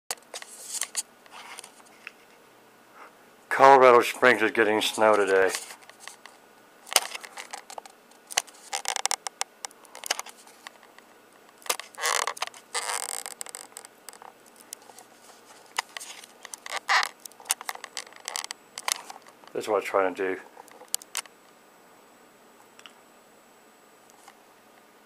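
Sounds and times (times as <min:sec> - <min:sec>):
rustling scrapes: 0:00.3 - 0:02.4, 0:04.8 - 0:06.3, 0:11.7 - 0:19.4.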